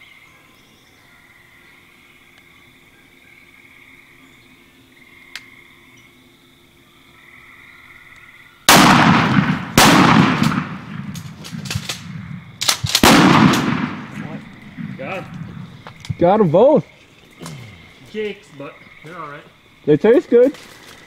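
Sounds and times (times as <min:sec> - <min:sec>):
shotgun blasts: 0:08.7 - 0:15.7.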